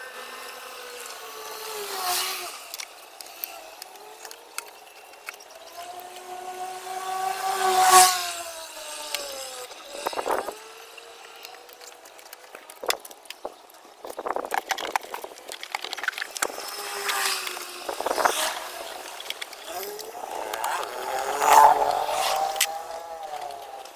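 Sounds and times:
passing vehicle engine hum: 5.4s - 12.0s, 16.7s - 23.9s.

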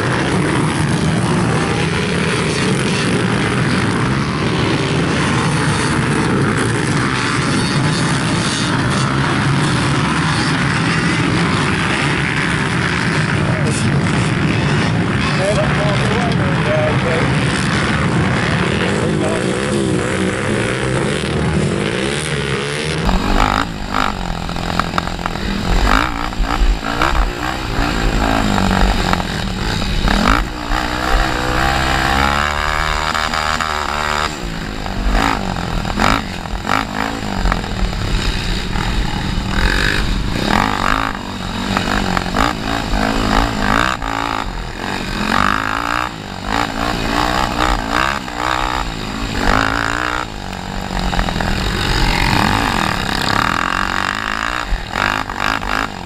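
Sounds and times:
quad engine revving: 0.0s - 56.0s
distant quads running: 23.0s - 56.0s
wind noise: 23.0s - 56.0s.

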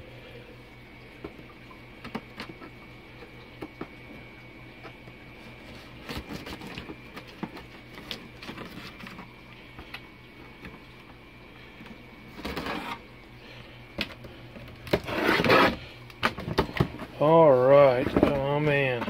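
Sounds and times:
faint steady hum: 0.0s - 19.0s
knife slitting packing tape: 14.9s - 15.8s.

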